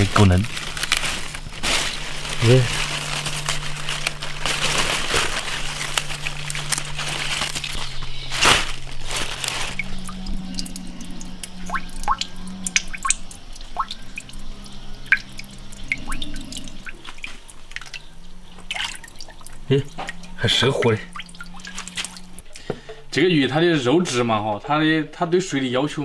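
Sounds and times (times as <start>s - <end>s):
leaf snapping: 0.0s - 10.8s, 21.2s - 22.6s
cabbage leaves rustling and crinkling: 0.0s - 22.5s
water dripping in a tank: 9.6s - 22.7s.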